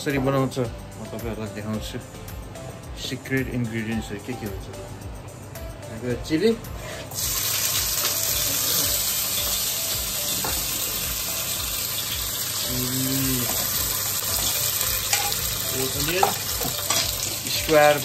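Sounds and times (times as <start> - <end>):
oil hissing in frying pan: 7.1 - 18.0.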